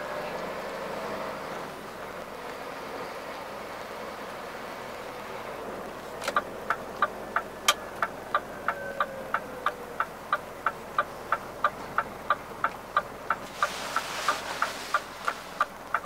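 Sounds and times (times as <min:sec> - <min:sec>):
truck running noise: 0:00.0 - 0:16.0
turn signal ticking: 0:05.8 - 0:16.0.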